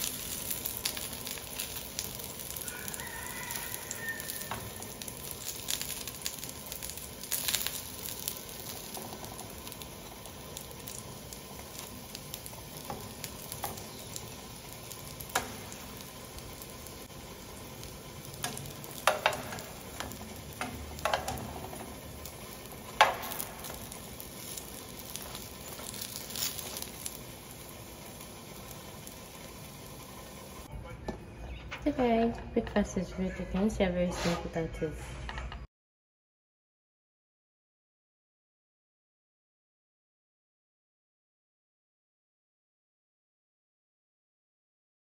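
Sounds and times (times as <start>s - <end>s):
sausages sizzling in oil: 0.0s - 30.7s
metal tongs knocking pan: 18.4s - 21.9s.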